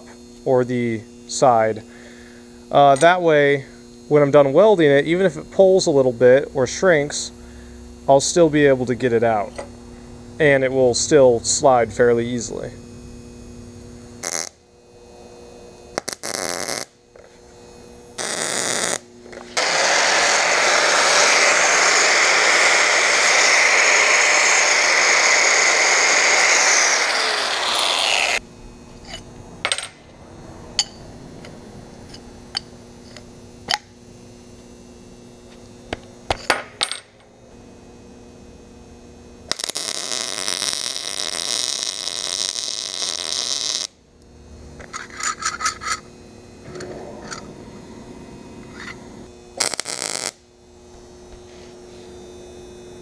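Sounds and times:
welder arc crackle: 12.2 - 28.4, 39.4 - 45.0, 45.9 - 50.5.

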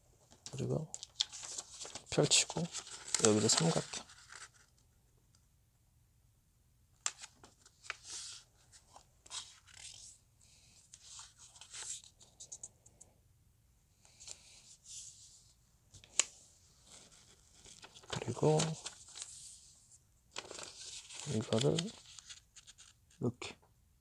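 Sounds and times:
paper rustling and crinkling: 0.3 - 4.8, 7.0 - 10.2, 15.9 - 23.1.

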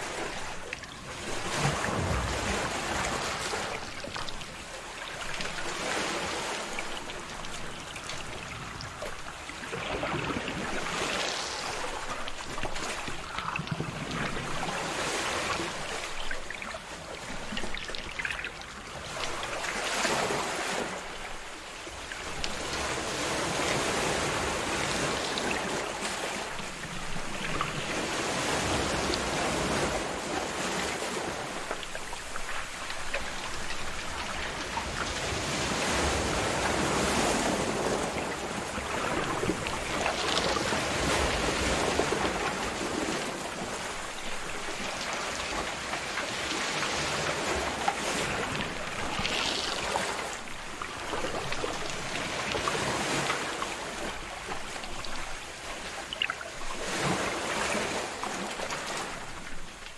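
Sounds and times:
ocean waves breaking: 0.0 - 59.9.

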